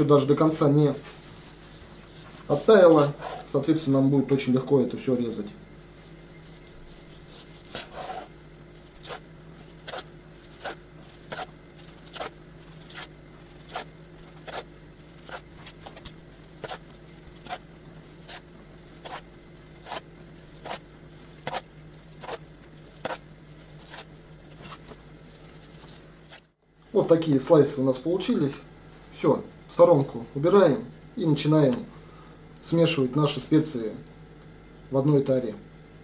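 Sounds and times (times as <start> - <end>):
faint steady hum: 0.0 - 36.0
knife slicing onto cutting board: 9.0 - 17.6.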